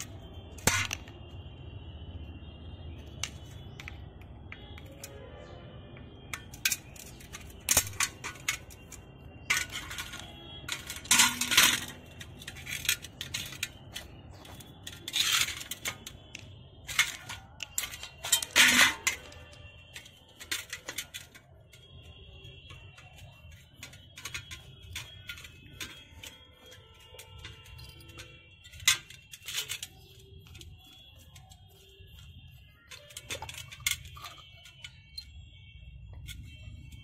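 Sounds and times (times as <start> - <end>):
metal parts rattling: 0.0 - 1.1, 3.1 - 5.2, 6.3 - 37.0
metal parts clinking on steel pan: 6.3 - 35.4.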